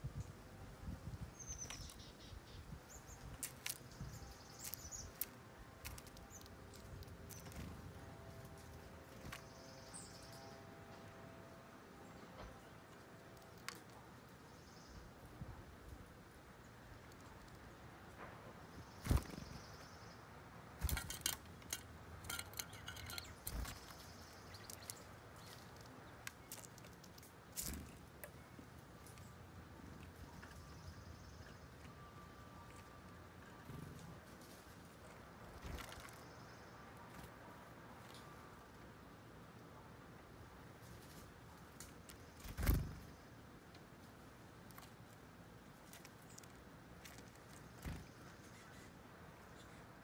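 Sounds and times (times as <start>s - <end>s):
songbirds high-pitched calls: 1.3s - 10.7s
bird wings fluttering: 18.9s - 19.7s, 42.4s - 43.1s.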